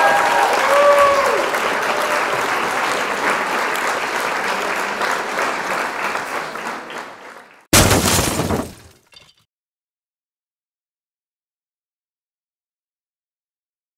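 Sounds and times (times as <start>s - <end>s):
crowd applause: 0.0s - 7.7s
loud crash: 7.7s - 9.0s.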